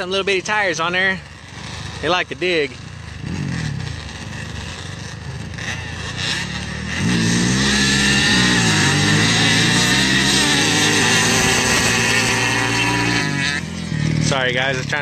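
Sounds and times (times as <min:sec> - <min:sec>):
faint atv engines racing: 0:00.0 - 0:15.0
loud engine revving: 0:00.0 - 0:15.0.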